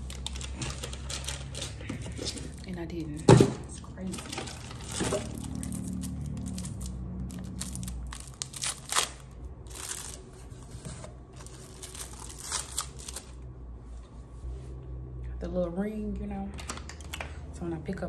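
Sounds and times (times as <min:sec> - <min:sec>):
packaging crinkling and rustling: 0:00.0 - 0:02.7, 0:04.0 - 0:13.4.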